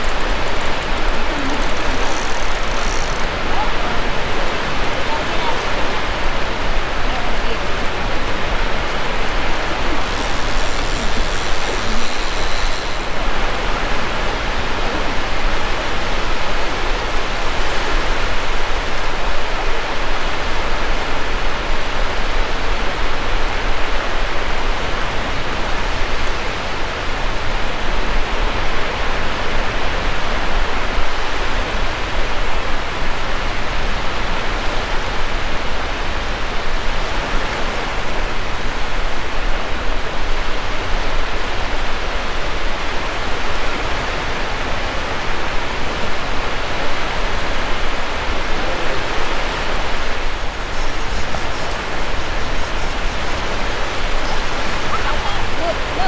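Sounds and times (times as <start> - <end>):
surf breaking on beach: 45.1 - 56.0.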